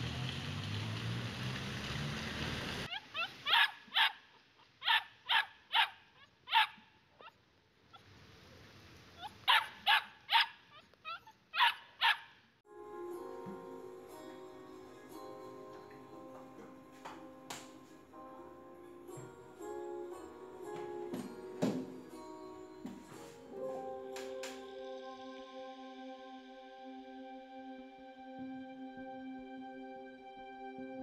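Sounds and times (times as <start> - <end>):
dog barking: 2.9 - 7.4, 9.2 - 12.4
soft music with ticking beat: 12.7 - 25.5.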